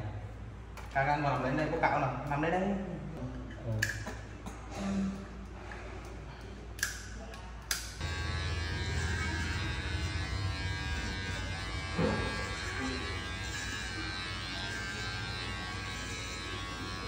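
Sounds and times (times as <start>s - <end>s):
electric hair clippers buzzing: 8.0s - 17.0s.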